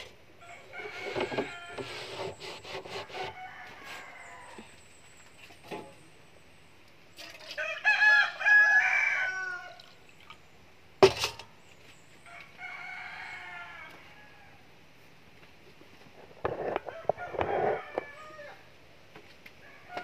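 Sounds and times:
rooster crowing: 0.4 - 2.2, 3.0 - 4.7, 7.6 - 9.8, 12.3 - 14.7, 16.8 - 18.7, 19.6 - 20.0.

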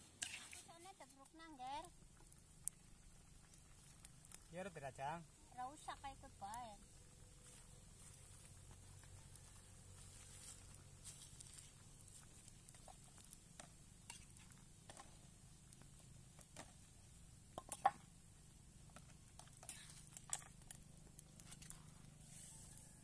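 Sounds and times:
metal spatula scraping a wok: 0.1 - 0.8, 14.0 - 15.2, 19.6 - 20.4.

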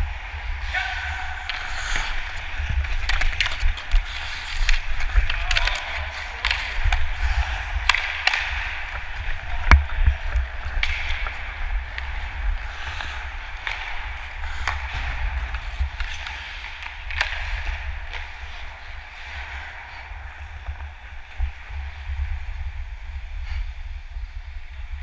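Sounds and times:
hockey sticks and puck clacking: 0.3 - 23.2
skate blades scraping ice: 0.7 - 20.8.

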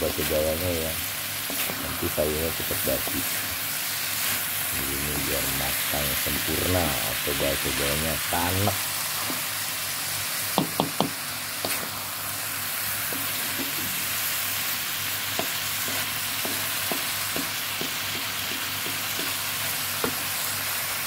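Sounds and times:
food sizzling in a wok: 0.0 - 21.0
spatula knocking and scraping pan: 10.6 - 11.9, 15.3 - 20.3.

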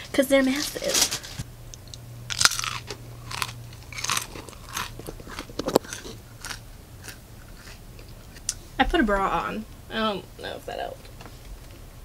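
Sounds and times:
person chewing crunchy pretzels: 2.3 - 8.7.

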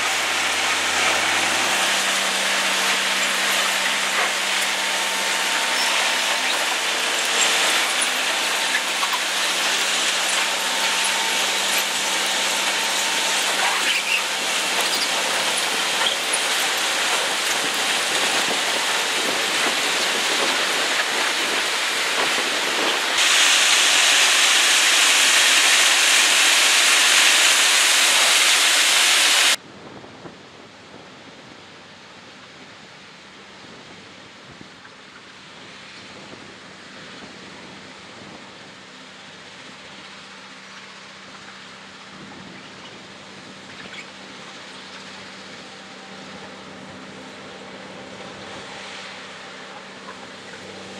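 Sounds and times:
dull rushing noise: 0.0 - 29.6
machine hum: 0.0 - 29.6.

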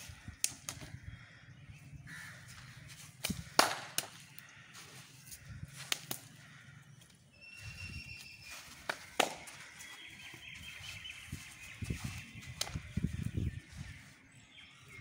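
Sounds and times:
faint birds calling: 0.0 - 15.0
forearms slapping: 3.1 - 4.3, 5.8 - 6.4, 8.7 - 9.6, 12.5 - 13.0.

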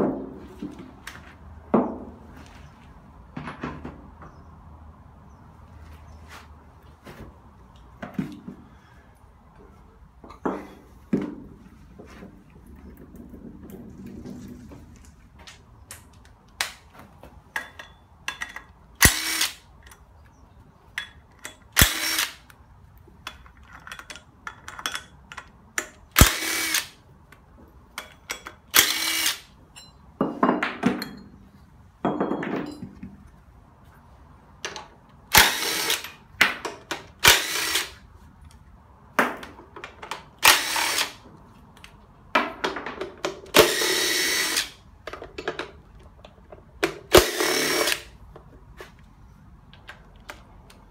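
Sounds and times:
cordless drill bursts: 19.0 - 19.6, 21.8 - 22.4, 26.2 - 27.0, 28.8 - 29.5, 35.3 - 36.0, 37.2 - 38.0, 40.4 - 41.2, 43.6 - 44.8, 47.1 - 48.1.

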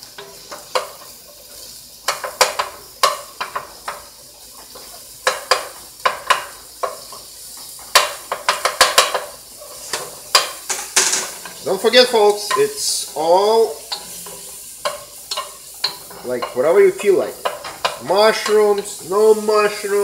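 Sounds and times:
mushrooms sizzling in oil: 0.0 - 20.0
wooden spoon scraping a pot: 0.1 - 11.8.

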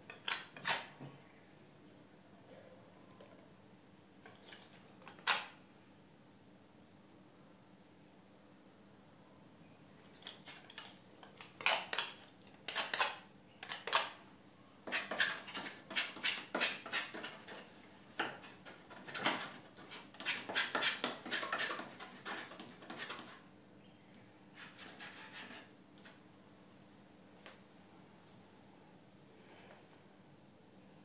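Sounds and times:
palette knife scraping paint: 0.1 - 0.9, 10.2 - 14.2, 14.8 - 23.5, 24.6 - 25.7.

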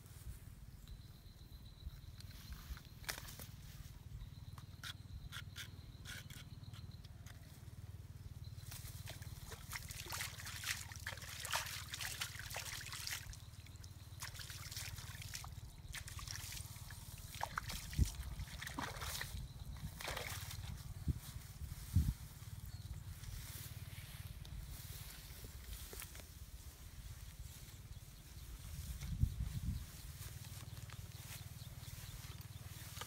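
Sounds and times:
water trickling and splashing: 8.9 - 20.8.

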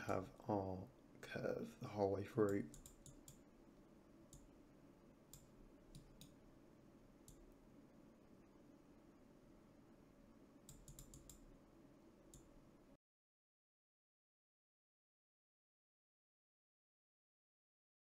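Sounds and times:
low room hum: 0.0 - 13.0
mouse and keyboard clicks: 5.3 - 6.4, 10.7 - 11.5.

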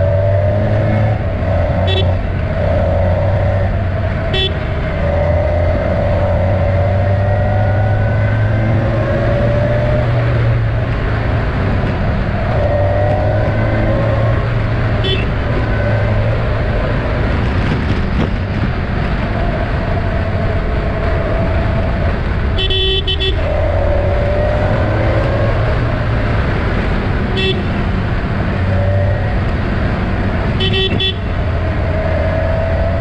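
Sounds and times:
wind noise: 0.0 - 33.0
vehicle horn: 1.8 - 2.2, 4.3 - 4.8, 15.0 - 15.4, 22.5 - 23.5, 27.3 - 27.8, 30.5 - 31.4.

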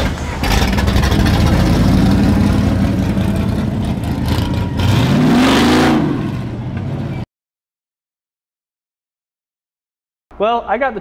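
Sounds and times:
car engine revving past: 0.0 - 7.2.

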